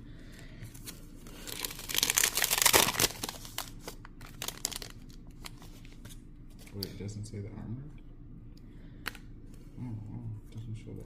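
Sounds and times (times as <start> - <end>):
cards rustling: 0.7 - 6.7
foil wrapper tearing and crinkling: 1.4 - 5.6.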